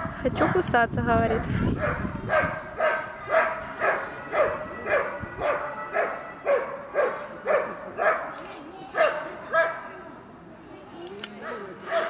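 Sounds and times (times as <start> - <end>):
dog barking rhythmically: 0.4 - 0.6, 1.3 - 8.3.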